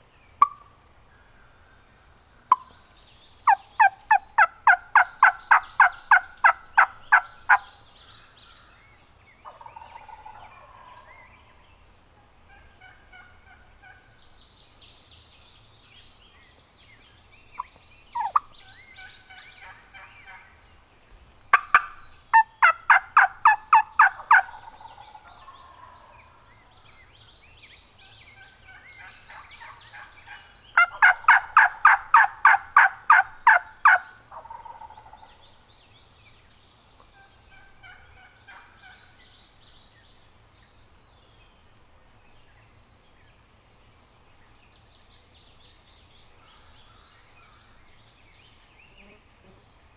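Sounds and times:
songbird chirps: 0:00.0 - 0:49.9
turkey yelping: 0:18.2 - 0:18.4, 0:21.5 - 0:24.7, 0:30.8 - 0:35.1.

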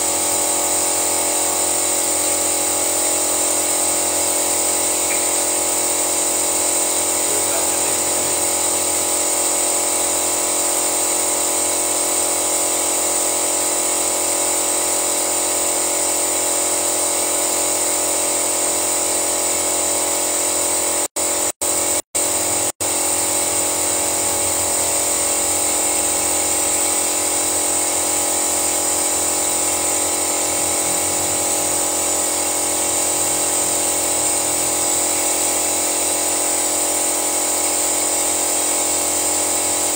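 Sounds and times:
car engine running with whine: 0:00.0 - 0:09.2, 0:21.5 - 0:36.8.

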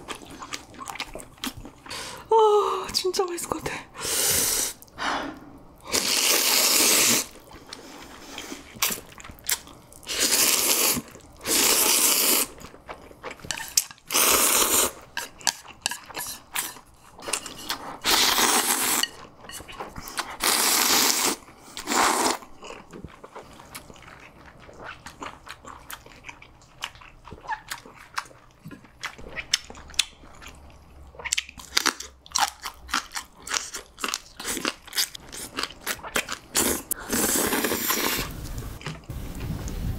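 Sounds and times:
wet chewing: 0:00.0 - 0:02.3, 0:12.4 - 0:39.8
slurping noodles: 0:04.0 - 0:09.1, 0:10.0 - 0:12.6, 0:13.6 - 0:15.1, 0:17.3 - 0:19.1, 0:20.1 - 0:22.5, 0:36.4 - 0:38.7.

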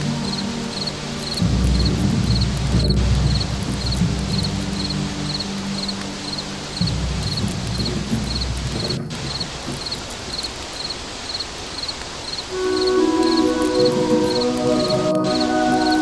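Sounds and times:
music: 0:00.0 - 0:09.5, 0:12.5 - 0:16.0
crickets chirping: 0:00.0 - 0:16.0
night ambience hiss: 0:00.0 - 0:16.0
low rumble: 0:01.3 - 0:05.9, 0:06.6 - 0:09.6.

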